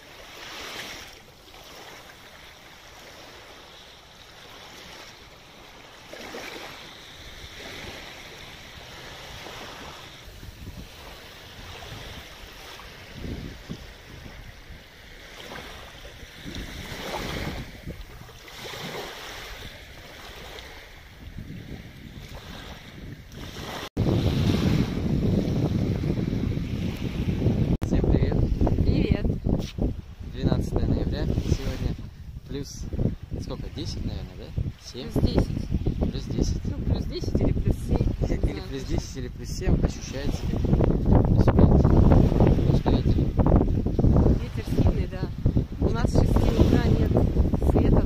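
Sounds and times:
sea surf washing ashore: 0.0s - 48.0s
wind on microphone: 6.2s - 48.0s.

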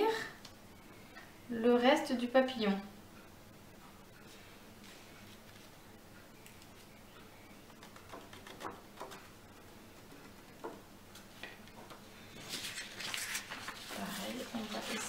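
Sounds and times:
paper tapping and clicking: 7.7s - 9.3s.

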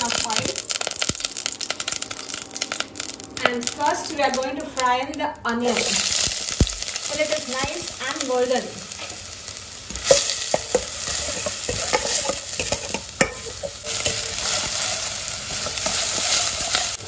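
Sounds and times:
onions sizzling in oil: 0.0s - 17.0s
spatula scraping a wok: 9.9s - 17.0s.

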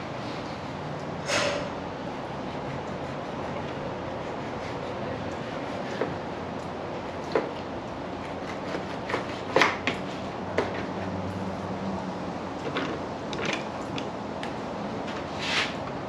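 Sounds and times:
knife and fish knocking and scraping: 8.2s - 11.0s.

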